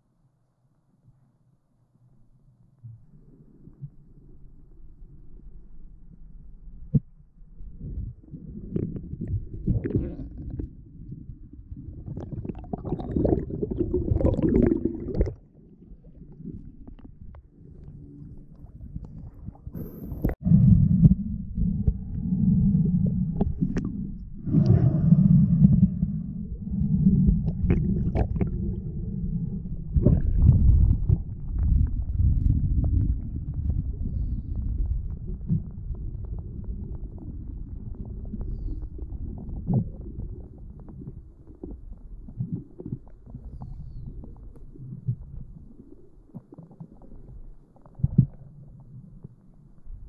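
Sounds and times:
underwater sloshing and gurgling: 1.1s - 50.0s.

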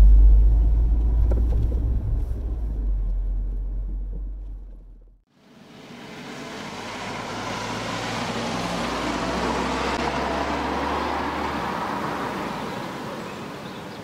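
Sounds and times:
car driving past: 5.6s - 13.5s.

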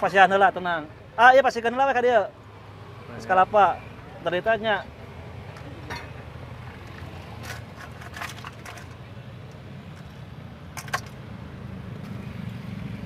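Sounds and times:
street traffic rumble: 0.0s - 13.0s
clatters and scrapes: 5.5s - 9.1s, 10.8s - 11.2s.

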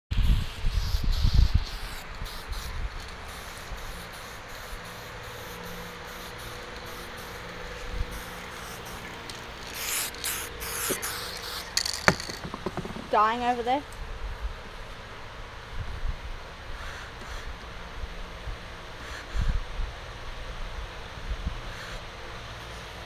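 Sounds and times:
spray paint can hissing: 0.2s - 13.2s.

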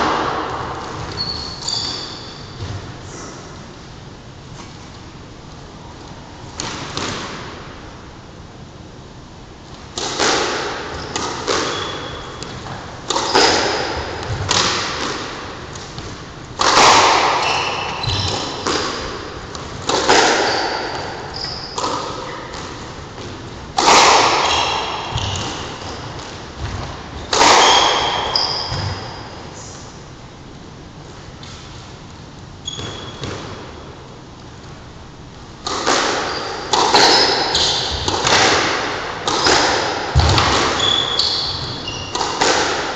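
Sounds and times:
squash ball hits: 0.0s - 3.4s, 6.6s - 7.6s, 9.8s - 29.3s, 32.7s - 33.8s, 35.6s - 42.9s
shoe squeaks on wooden floor: 1.0s - 2.6s, 11.0s - 12.6s, 17.4s - 18.6s, 20.4s - 21.8s, 24.4s - 26.1s, 27.2s - 29.2s, 32.6s - 33.2s, 36.3s - 38.1s, 40.8s - 42.2s.

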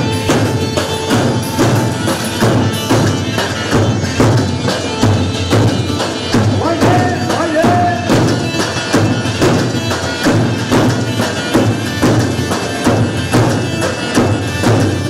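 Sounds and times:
loud drum beat: 0.0s - 15.0s.

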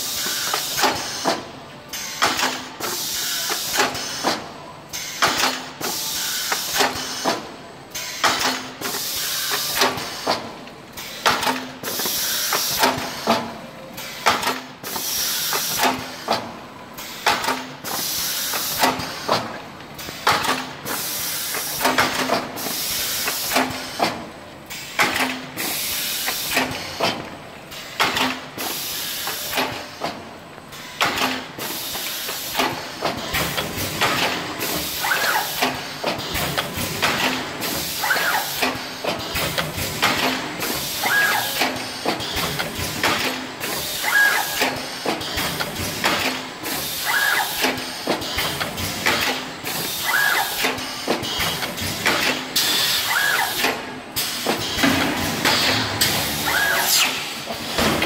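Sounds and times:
mechanical clacks: 17.1s - 30.2s, 30.8s - 58.0s
compressed air hiss: 55.5s - 57.5s.

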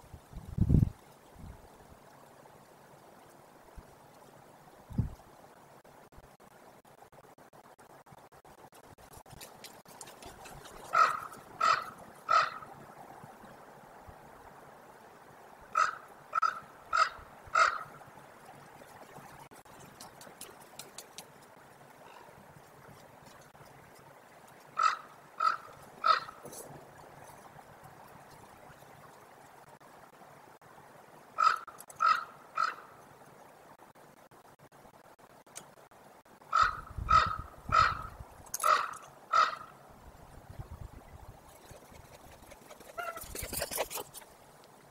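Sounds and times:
ravens croaking: 10.6s - 13.1s, 15.6s - 18.1s, 24.6s - 26.7s, 31.4s - 33.0s, 36.5s - 39.8s, 42.6s - 44.2s.

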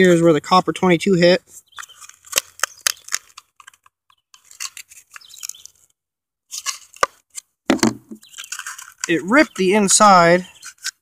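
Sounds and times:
fingers scraping helmet shell: 1.7s - 5.9s, 6.5s - 11.0s.

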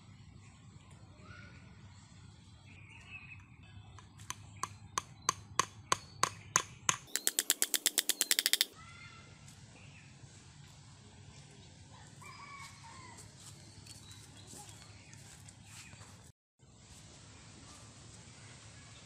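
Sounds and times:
small hammer striking bamboo: 4.0s - 8.8s.

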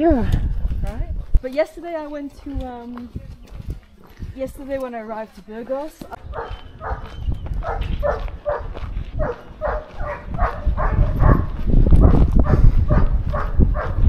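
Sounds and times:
wind buffeting microphone: 0.0s - 14.0s
dog barking: 6.3s - 14.0s.

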